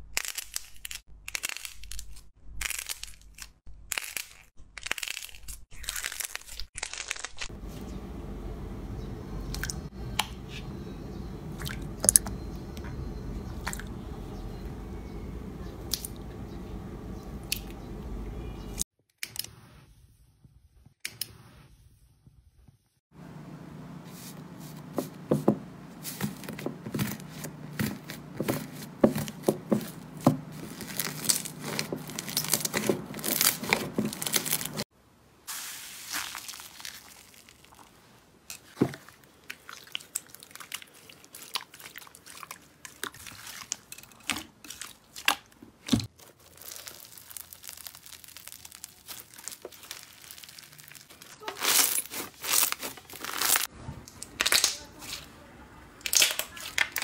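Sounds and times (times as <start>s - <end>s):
bead-filled slime crunching: 0.0s - 7.5s, 26.0s - 34.8s, 35.5s - 38.0s, 38.7s - 45.4s, 46.1s - 53.7s
slime crust crackling and crunching: 0.0s - 8.8s, 26.0s - 34.9s, 35.5s - 38.1s, 39.4s - 43.9s, 44.6s - 55.3s.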